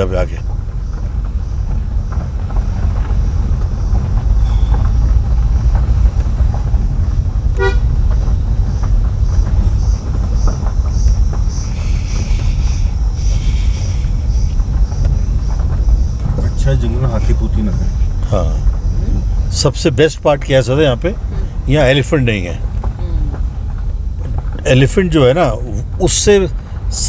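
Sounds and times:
engine and tyre rumble: 0:00.0 - 0:27.0
car horn toot: 0:07.5 - 0:08.0.

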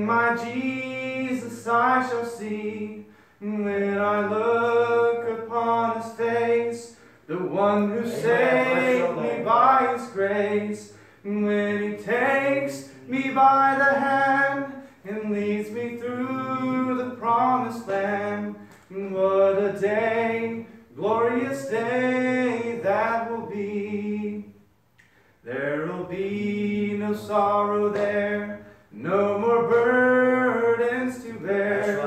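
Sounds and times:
man singing a hymn: 0:00.0 - 0:24.6, 0:25.4 - 0:32.0.

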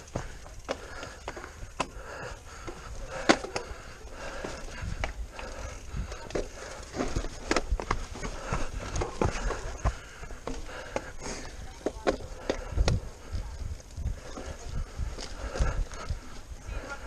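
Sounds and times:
bike knocks and rattles: 0:00.0 - 0:13.3
steady low rumble: 0:00.0 - 0:17.0
tyres rolling over dirt and stones: 0:00.0 - 0:17.0.

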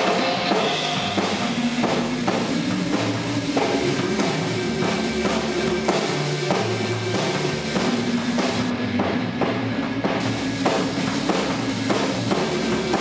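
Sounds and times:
electric guitar notes: 0:00.0 - 0:09.4
drum kit beat: 0:00.0 - 0:13.0.

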